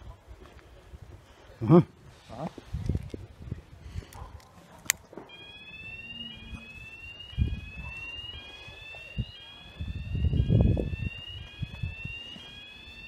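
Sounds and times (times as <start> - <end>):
electronic alarm rising tone: 5.3 - 13.0.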